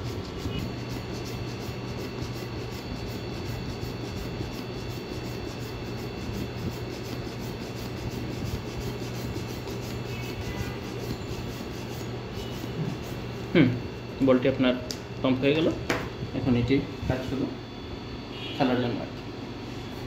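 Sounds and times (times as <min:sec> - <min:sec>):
hand pump strokes: 0:00.0 - 0:13.2
steady low hum: 0:00.0 - 0:20.0.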